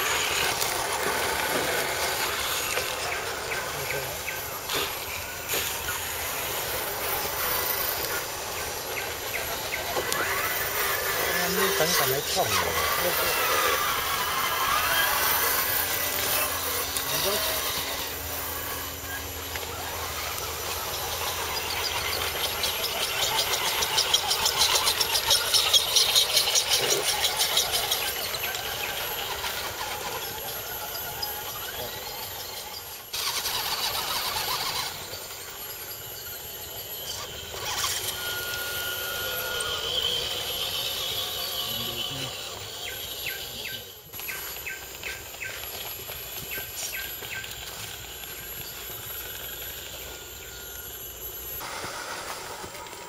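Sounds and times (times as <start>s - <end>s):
electric motors whining: 0.0s - 53.0s
rapid buzzing: 0.0s - 53.0s.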